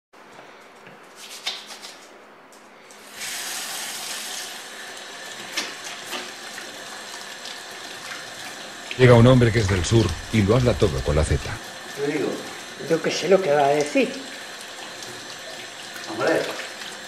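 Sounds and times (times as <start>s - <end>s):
water splashes: 5.4s - 17.0s.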